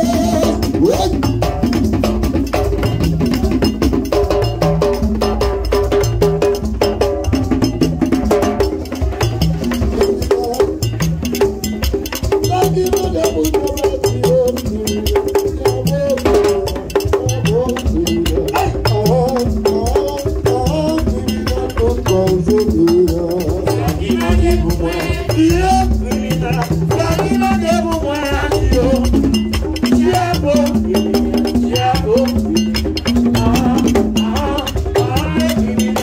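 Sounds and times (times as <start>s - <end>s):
voices singing: 0.0s - 1.6s, 7.3s - 11.8s, 12.4s - 36.0s
drums beating: 0.0s - 36.0s
sharp struck percussion: 0.0s - 36.0s.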